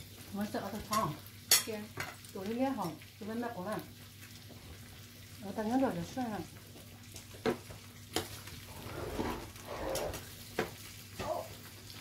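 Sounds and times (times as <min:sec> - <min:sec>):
food sizzling: 0:00.0 - 0:12.0
metal tongs tapping grill pan: 0:00.8 - 0:02.2.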